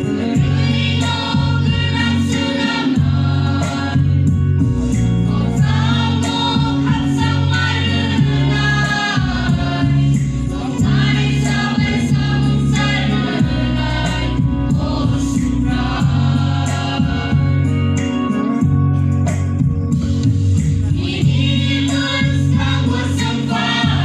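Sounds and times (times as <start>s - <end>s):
mixed choir singing gospel: 0.0s - 18.8s, 20.0s - 24.0s.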